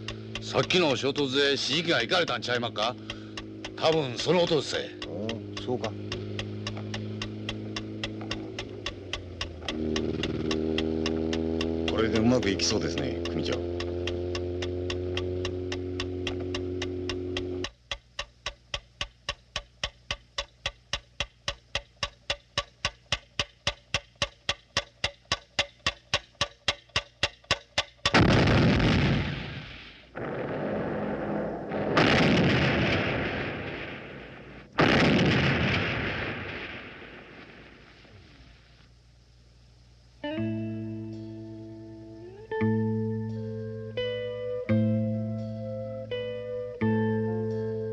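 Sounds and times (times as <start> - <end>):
rapid even ticking: 0.0 - 29.0
loud explosions: 28.2 - 38.1.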